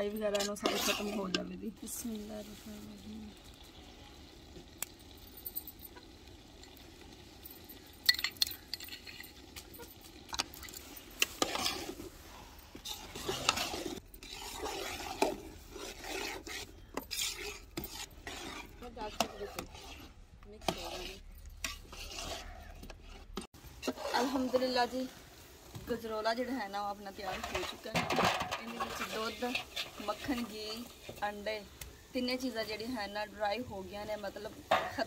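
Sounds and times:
metal ladle scraping a pot: 0.0s - 2.7s, 8.1s - 31.4s.

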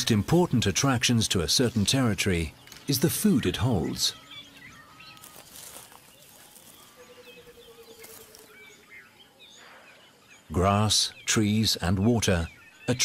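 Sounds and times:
bird chirps and calls: 0.0s - 13.0s.

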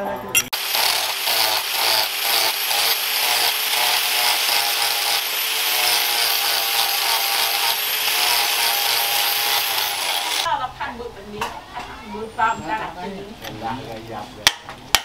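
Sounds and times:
angle grinder grinding wood: 0.4s - 10.5s.

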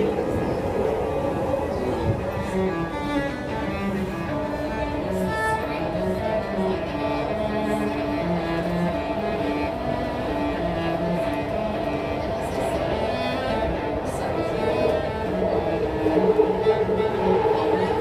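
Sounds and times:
bowed cello melody: 0.0s - 18.0s
steady low rumble: 11.9s - 18.0s.

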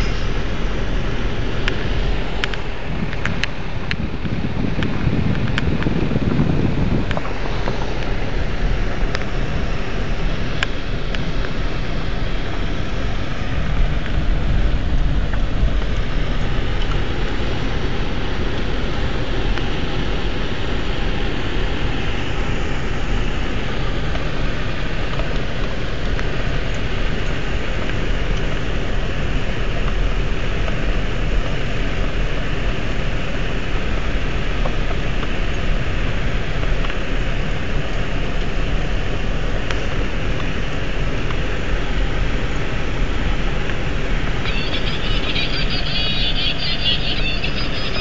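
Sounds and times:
car engine rumble: 0.0s - 48.0s
tyres on rough dirt road: 0.0s - 48.0s.

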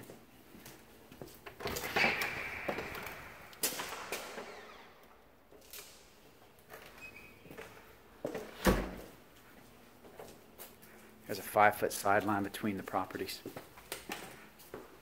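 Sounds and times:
door creak: 1.6s - 5.2s, 6.7s - 7.9s.

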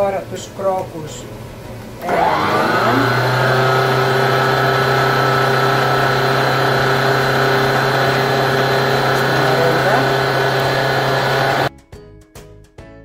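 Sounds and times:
stand mixer motor whine: 2.0s - 11.7s.

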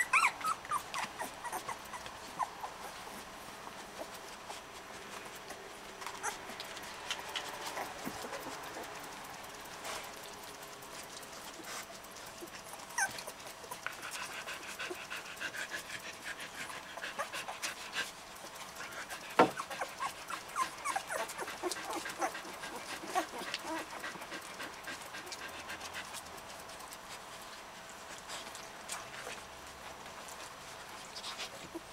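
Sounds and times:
puppies squeaking and whimpering: 0.0s - 3.2s, 6.1s - 8.7s, 12.4s - 13.8s, 19.4s - 23.9s.

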